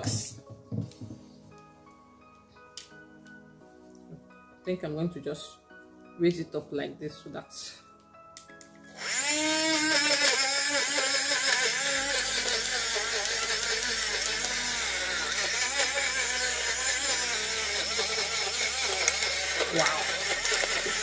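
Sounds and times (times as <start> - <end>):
blender motor whirring: 8.9 - 21.0.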